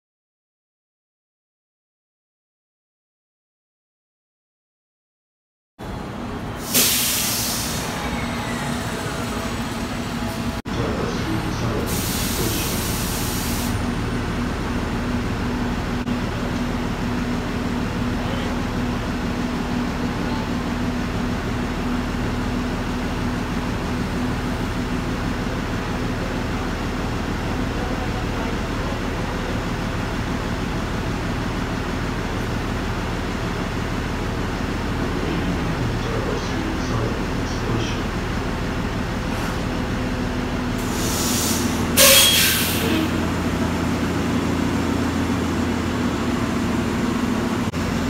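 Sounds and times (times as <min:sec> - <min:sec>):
bus engine idling: 0:05.8 - 0:48.0
air hiss: 0:06.6 - 0:08.0, 0:11.9 - 0:13.8, 0:40.8 - 0:42.9.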